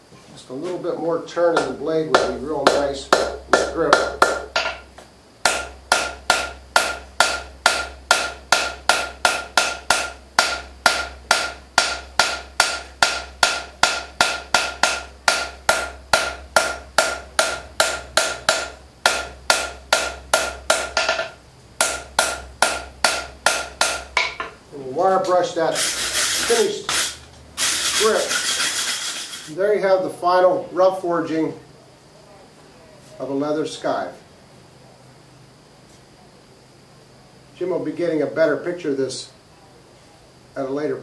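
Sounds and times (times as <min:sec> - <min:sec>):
hammer striking steel on anvil: 0:01.6 - 0:24.6.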